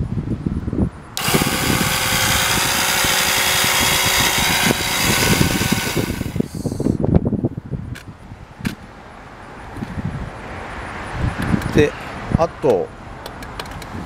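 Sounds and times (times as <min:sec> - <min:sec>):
electric pump whirring: 0:01.2 - 0:06.8.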